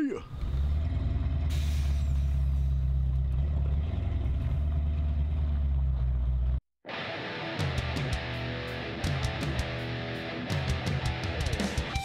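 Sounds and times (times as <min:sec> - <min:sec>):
engine running with low exhaust note: 0:00.3 - 0:06.6.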